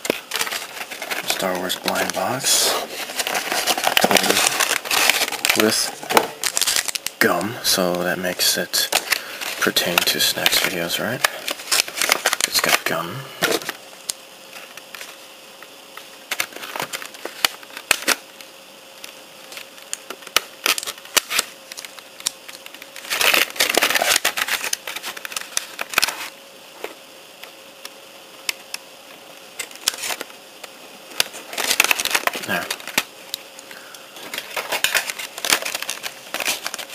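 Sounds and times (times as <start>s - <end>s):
plastic packaging crinkling: 0.0s - 13.9s, 15.9s - 27.0s, 29.6s - 36.9s.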